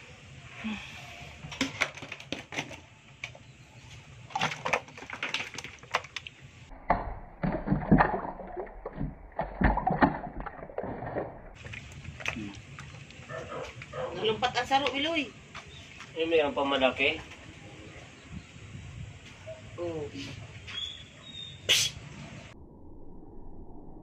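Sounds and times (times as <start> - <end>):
fish flopping in plastic tub: 4.3 - 6.4.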